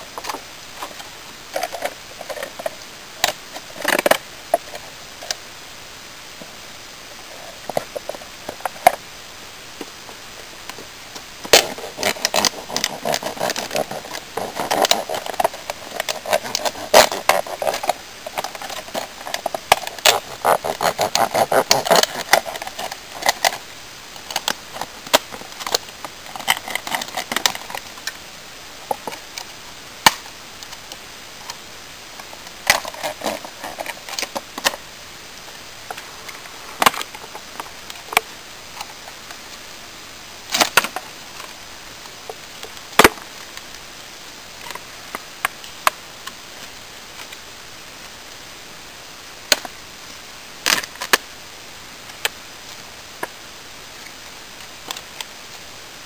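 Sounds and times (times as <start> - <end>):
plastic packaging crackling: 11.4 - 28.2.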